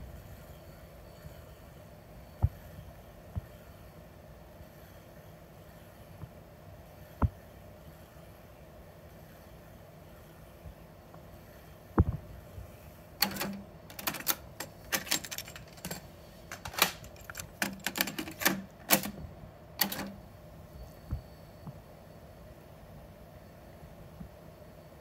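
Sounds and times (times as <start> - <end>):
plastic cassette clicks and clacks: 13.2 - 19.2, 19.8 - 20.2.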